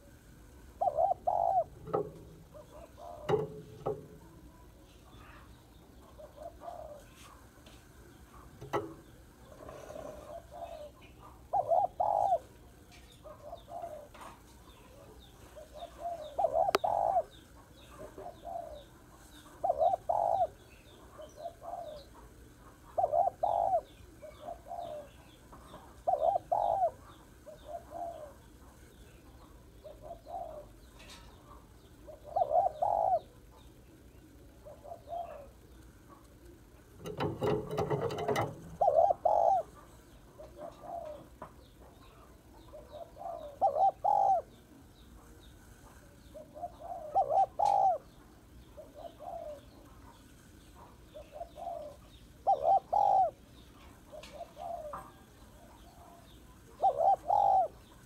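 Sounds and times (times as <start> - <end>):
dove cooing: 0.0 - 50.2, 50.8 - 58.0
small bird chirping: 8.1 - 22.2.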